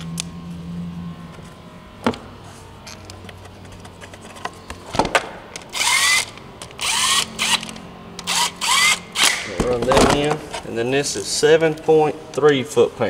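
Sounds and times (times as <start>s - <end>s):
cordless power tool whining: 0.0s - 10.3s.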